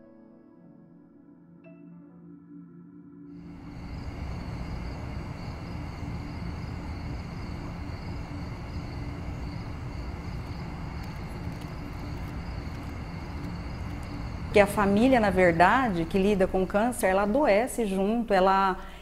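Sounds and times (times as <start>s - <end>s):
low rumbling noise: 3.4s - 18.3s
crickets chirping: 3.4s - 19.0s.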